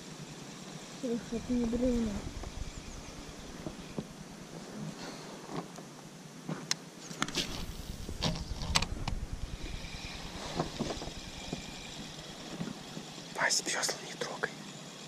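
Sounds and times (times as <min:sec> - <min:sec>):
low rumble: 0:01.0 - 0:05.0, 0:07.2 - 0:13.3.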